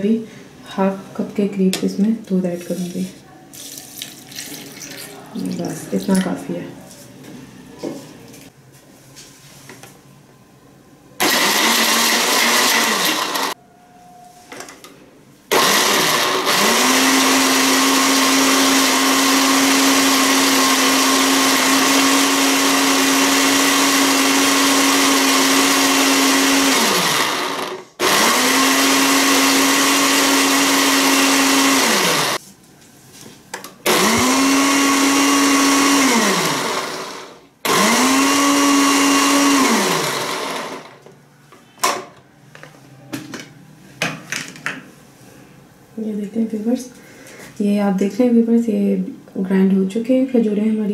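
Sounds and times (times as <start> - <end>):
electric blender motor: 11.2 - 13.6, 15.5 - 32.4, 33.9 - 41.0.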